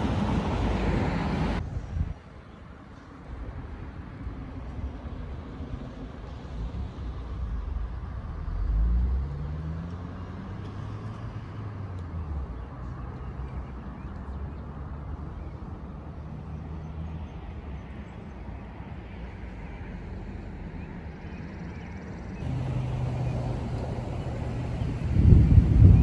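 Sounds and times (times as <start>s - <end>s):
vehicle driving past: 6.3s - 13.5s, 22.3s - 26.0s.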